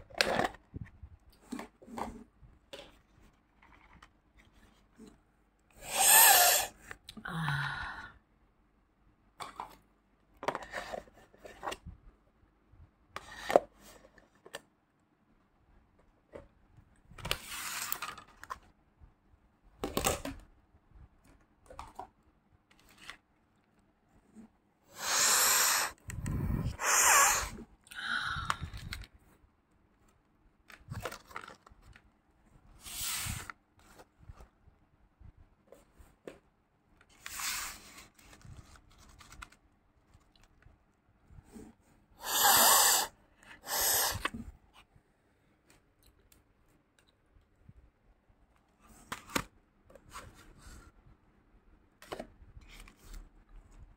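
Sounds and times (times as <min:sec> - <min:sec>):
plastic containers scraping and clicking: 0:00.0 - 0:05.2, 0:09.4 - 0:11.9.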